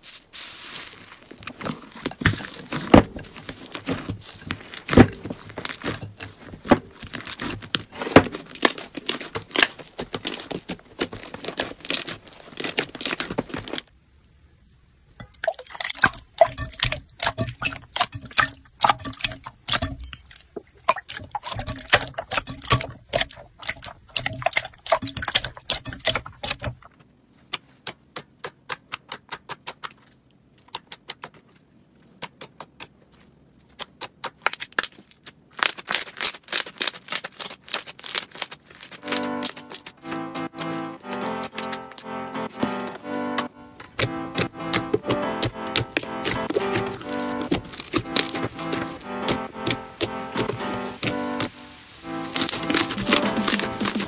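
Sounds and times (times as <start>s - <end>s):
slime crackling and popping: 0.5s - 13.9s, 32.1s - 54.0s.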